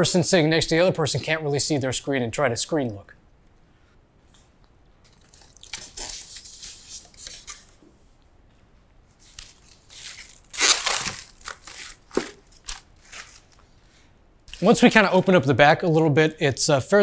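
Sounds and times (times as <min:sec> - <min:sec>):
plastic wrapping crinkling: 0:05.1 - 0:07.8, 0:09.1 - 0:13.8.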